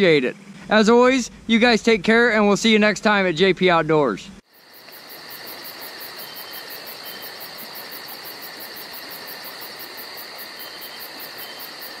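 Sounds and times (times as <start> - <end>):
fast pulsing cricket chirp: 4.4 - 12.0
insects trilling: 4.4 - 12.0.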